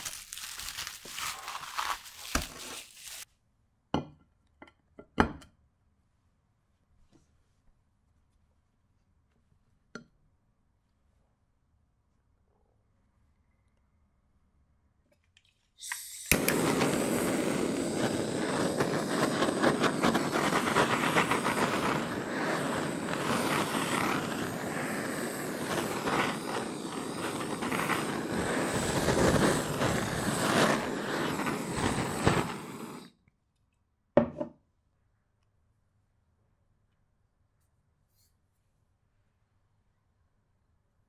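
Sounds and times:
blowtorch flame hissing: 15.8 - 33.2.

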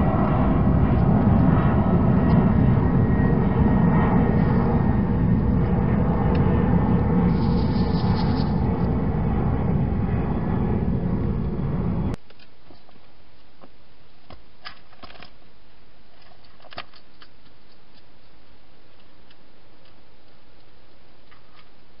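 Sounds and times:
steady hiss: 7.3 - 8.7
hedgehog feeding clicks and crunches: 16.2 - 18.1.

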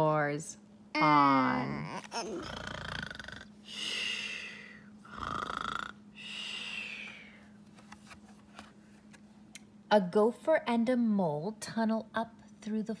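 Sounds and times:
person imitating snoring: 1.2 - 6.0.

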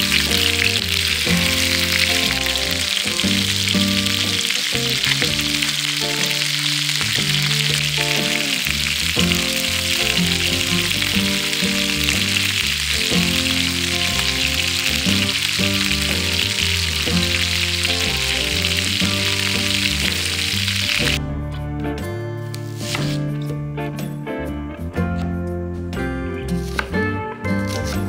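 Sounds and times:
food sizzling in hot oil: 0.0 - 21.2
background music: 0.0 - 28.0.

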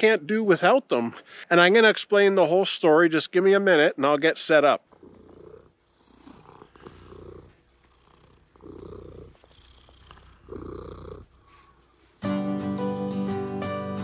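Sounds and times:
cat purring: 4.8 - 12.2.

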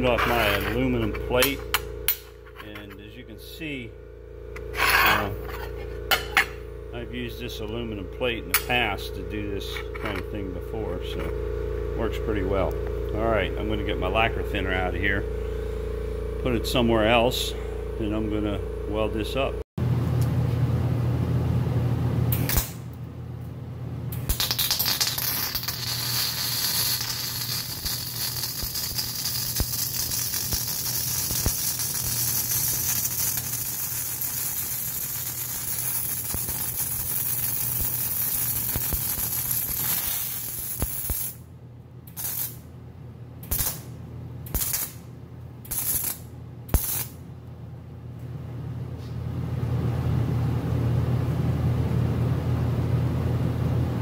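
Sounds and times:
welding arc crackling and hissing: 24.2 - 41.4, 42.1 - 42.6, 43.5 - 43.9, 44.5 - 45.0, 45.7 - 47.2.

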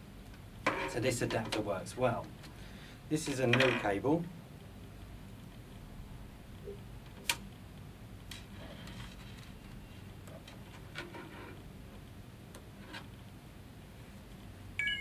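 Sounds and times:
phone charging chime: 14.8 - 15.0.

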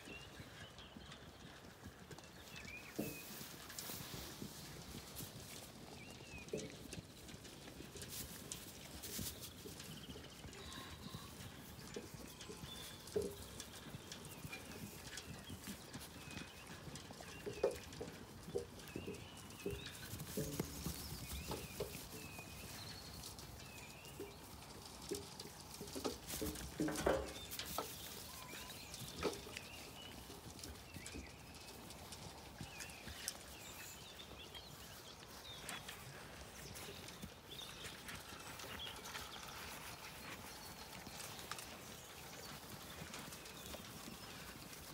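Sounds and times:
sheep knocking against metal trough: 26.2 - 27.6.

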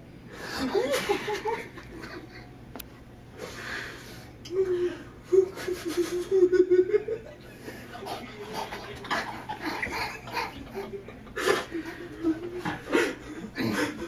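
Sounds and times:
person laughing: 0.5 - 2.5, 5.2 - 7.4, 9.1 - 14.0.

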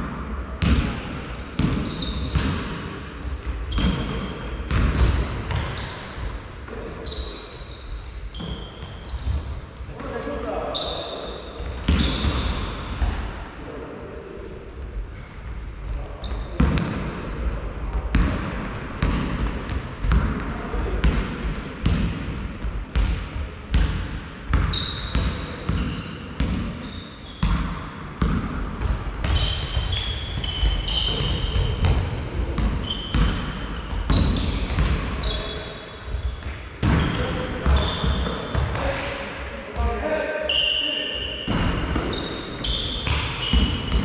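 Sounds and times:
sneakers squeaking on court: 0.6 - 10.1, 10.7 - 13.4, 16.2 - 16.9, 24.5 - 38.8, 40.5 - 44.0
basketball bouncing on floor: 3.7 - 5.8, 17.9 - 26.7, 27.4 - 35.1, 43.0 - 44.0.

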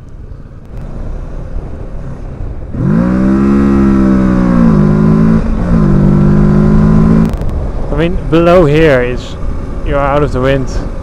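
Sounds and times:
motorcycle engine accelerating: 0.6 - 8.0.

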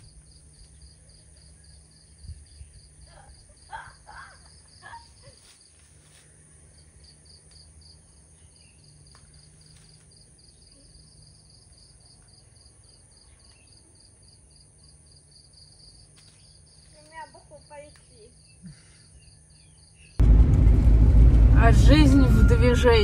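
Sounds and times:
insects chirping: 0.0 - 20.2
low hum: 20.2 - 23.0.

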